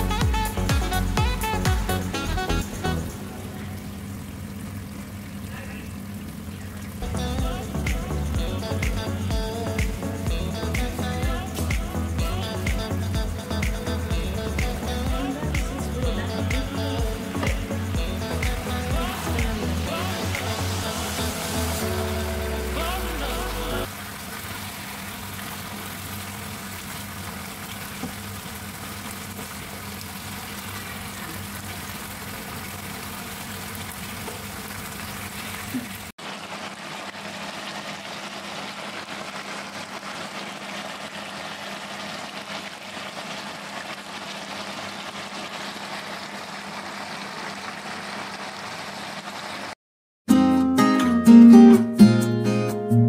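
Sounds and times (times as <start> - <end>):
low hum: 0.0 - 23.9
stew simmering and sizzling: 17.0 - 49.7.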